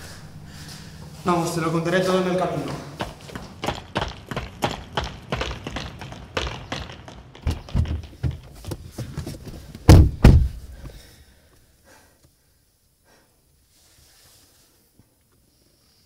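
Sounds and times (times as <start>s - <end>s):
running footsteps on paving: 2.1s - 11.0s
car doors slamming: 9.8s - 10.7s.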